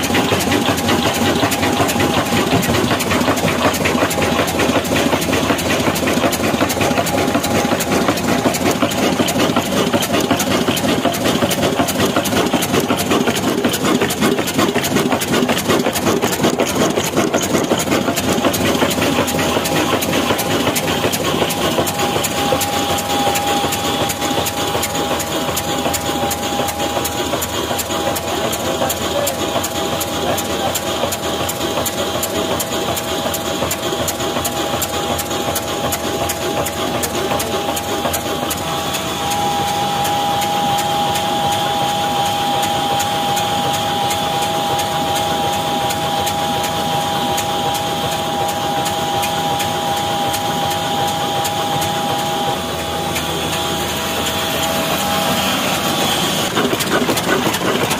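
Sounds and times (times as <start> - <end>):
diesel engine chugging: 0.0 - 57.9.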